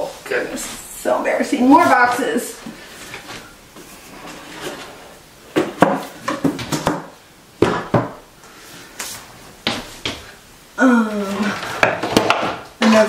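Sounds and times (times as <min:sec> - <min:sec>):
soft rustling: 0:00.0 - 0:05.2
items knocking in wooden cabinet: 0:05.5 - 0:08.2, 0:11.8 - 0:13.0.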